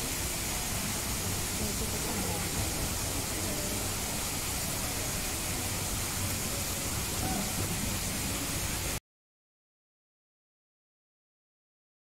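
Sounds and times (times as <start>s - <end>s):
faint distant voices: 0.0s - 8.7s.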